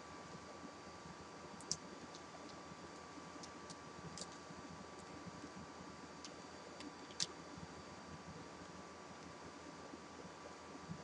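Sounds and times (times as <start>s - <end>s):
room hiss: 0.0s - 11.0s
faint small clicks: 1.6s - 2.6s.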